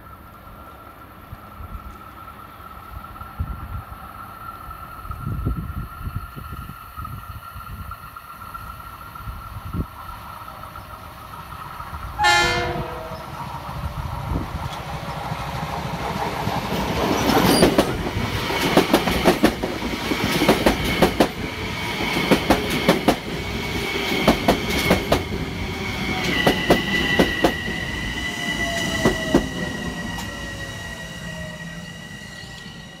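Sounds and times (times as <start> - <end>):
train high whine: 0.0 - 33.0
train wheels clicking over rail joints: 13.2 - 30.4.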